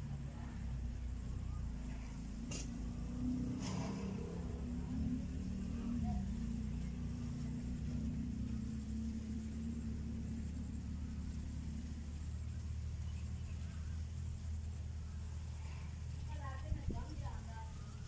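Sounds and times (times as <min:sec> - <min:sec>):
faint high whine: 0:00.0 - 0:18.0
low engine-like rumble: 0:00.0 - 0:18.0.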